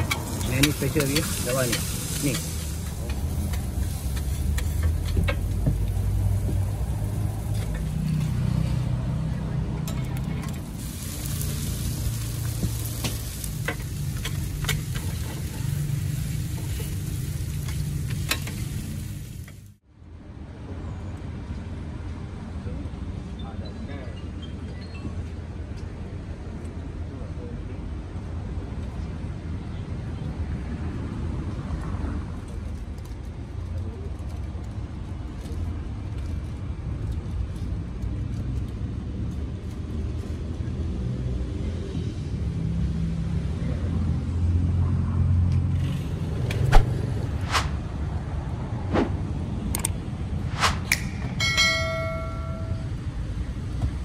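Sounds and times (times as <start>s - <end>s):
patties sizzling on a griddle: 0.0s - 8.1s, 10.6s - 19.8s
low traffic rumble: 0.0s - 54.0s.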